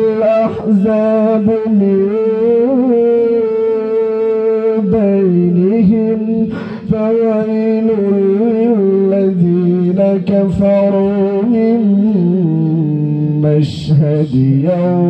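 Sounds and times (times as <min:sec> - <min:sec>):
man reciting melodically into microphone: 0:00.0 - 0:15.0.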